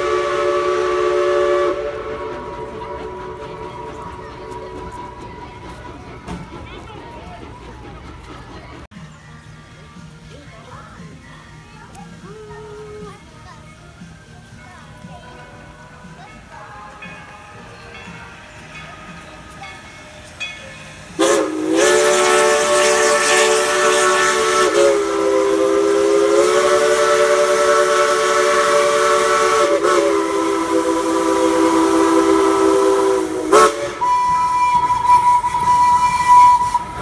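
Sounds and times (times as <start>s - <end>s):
steam locomotive chime whistle: 0.0s - 6.5s, 15.2s - 37.0s
steam hissing: 0.0s - 37.0s
thin high whistle tone: 16.0s - 37.0s.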